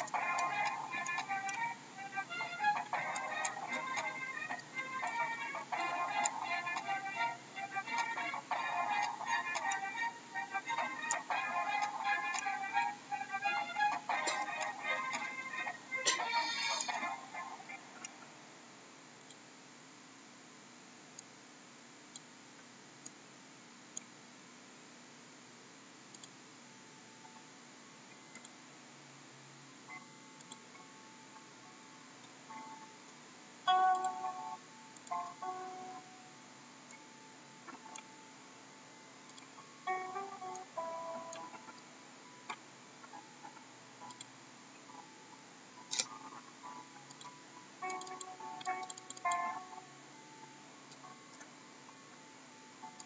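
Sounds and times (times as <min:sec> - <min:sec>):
soft plucked background music: 0:00.0 - 0:18.3, 0:29.4 - 0:53.0
faint steady hiss: 0:00.0 - 0:53.0
computer mouse clicks: 0:26.1 - 0:26.4, 0:28.1 - 0:28.6, 0:30.4 - 0:30.9, 0:33.9 - 0:34.2, 0:37.7 - 0:38.2, 0:39.2 - 0:40.7, 0:45.9 - 0:46.2, 0:47.1 - 0:49.5
light ticks: 0:26.1 - 0:26.4, 0:28.1 - 0:28.6, 0:29.9 - 0:31.5, 0:32.2 - 0:34.3, 0:41.3 - 0:45.1, 0:45.8 - 0:49.4.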